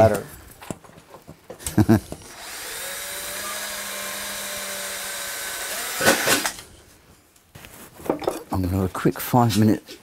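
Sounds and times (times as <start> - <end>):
drill boring through metal: 2.2 - 6.6.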